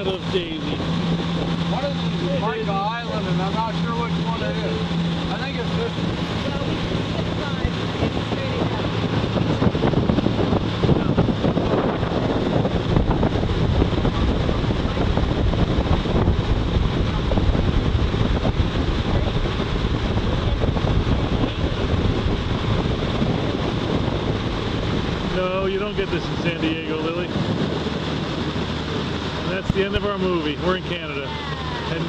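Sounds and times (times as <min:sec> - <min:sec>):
boat motor drone: 0:00.0 - 0:32.0
water rushing past hull: 0:00.0 - 0:32.0
wind buffeting microphone: 0:00.0 - 0:32.0.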